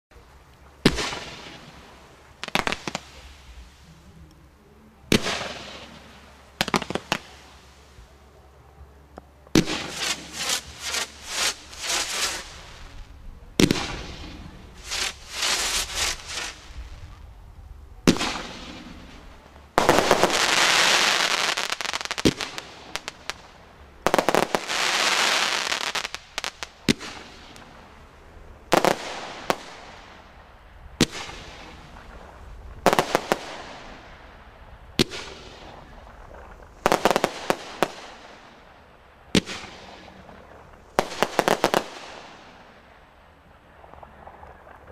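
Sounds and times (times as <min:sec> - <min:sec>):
firework launch bangs: 0:09.5 - 0:12.9, 0:13.6 - 0:16.8, 0:18.0 - 0:19.2
firework hissing: 0:09.6 - 0:17.0, 0:18.1 - 0:27.6.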